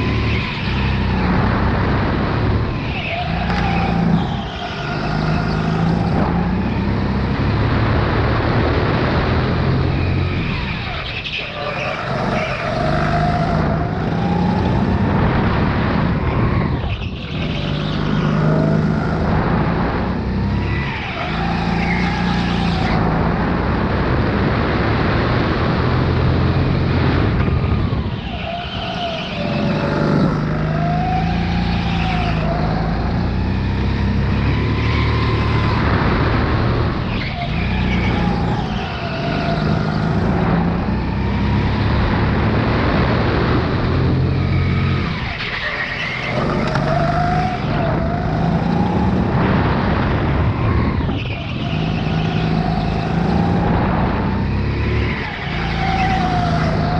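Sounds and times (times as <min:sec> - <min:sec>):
go-kart engine revving: 0:00.0 - 0:56.9.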